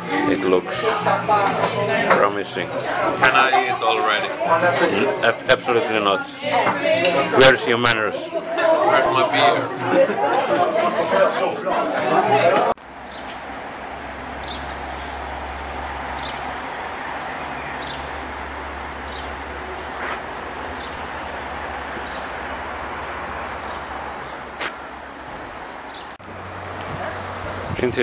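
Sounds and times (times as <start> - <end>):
low rumble of traffic: 0.0 - 28.0
bird chirping: 14.4 - 16.5, 17.3 - 18.4, 19.0 - 22.4.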